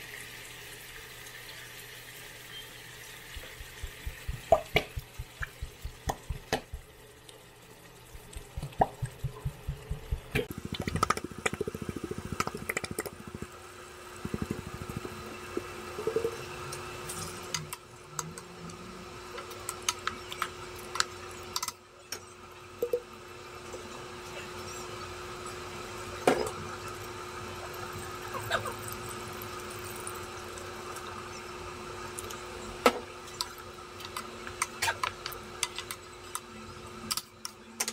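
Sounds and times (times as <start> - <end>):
faint steady hum: 2.2 - 21.6.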